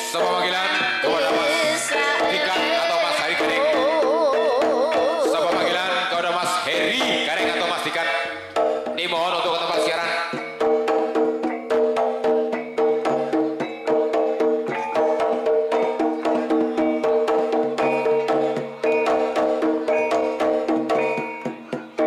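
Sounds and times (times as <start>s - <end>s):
drum strokes: 0.0s - 22.0s
percussion music: 0.0s - 22.0s
ringing pitched tones: 0.1s - 22.0s.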